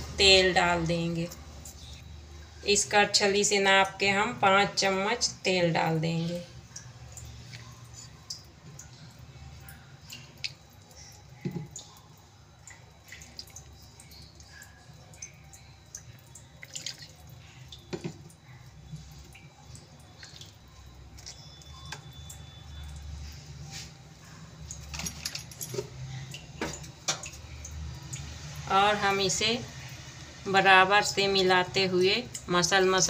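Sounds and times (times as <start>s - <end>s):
oil dripping into flour: 5.8s - 23.8s, 25.9s - 30.4s.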